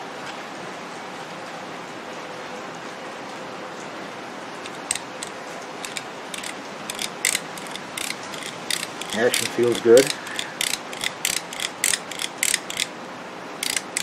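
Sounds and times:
steady hiss: 4.5 - 11.5
rotary switch clicking: 4.6 - 12.9, 13.6 - 14.0.

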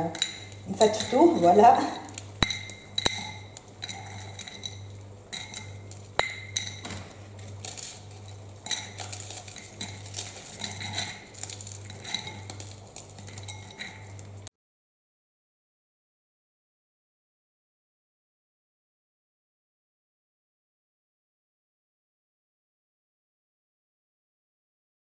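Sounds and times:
biscuits crackling into glass bowl: 0.0 - 14.5.

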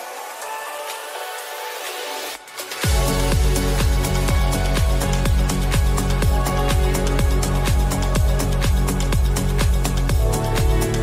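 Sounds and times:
electronic music: 0.0 - 11.0
heavy bass kick: 2.9 - 11.0.

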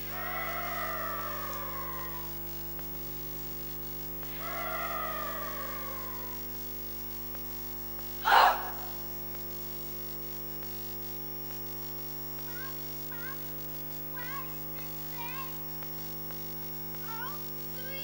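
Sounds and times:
electrical hum: 0.0 - 18.0
group speaking in chorus: 8.2 - 9.1
loud group shout: 8.2 - 9.1.

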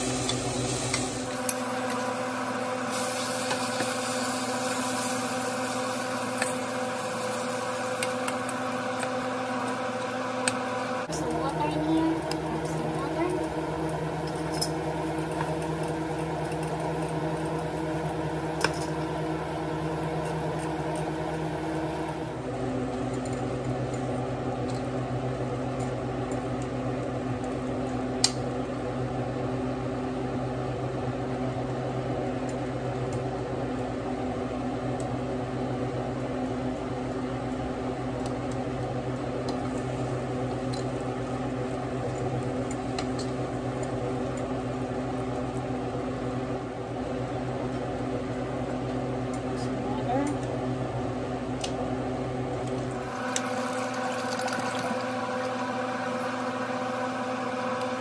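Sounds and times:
mechanical hum: 0.0 - 58.0.

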